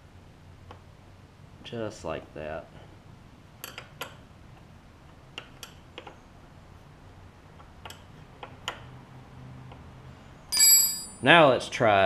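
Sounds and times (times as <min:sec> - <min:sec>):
wrench and metal parts clicking: 0:10.5 - 0:11.2.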